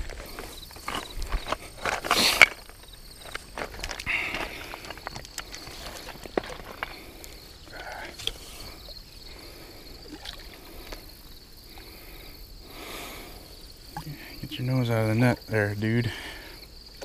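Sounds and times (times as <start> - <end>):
water splashing and sloshing: 0.0 - 7.4, 8.1 - 12.3, 13.8 - 14.4
insects chirring: 0.0 - 17.0.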